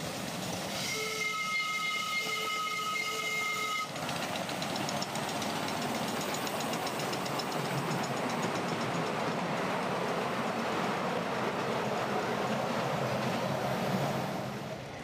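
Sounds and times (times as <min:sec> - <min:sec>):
train running with fast ticking: 0:00.0 - 0:15.0
locomotive whistle: 0:00.7 - 0:04.0.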